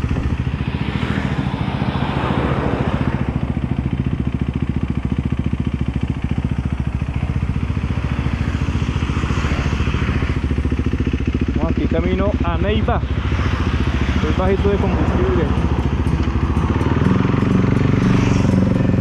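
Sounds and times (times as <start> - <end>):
vehicle rushing past: 0.0 - 4.2, 11.6 - 19.0
motorcycle engine running: 0.0 - 19.0.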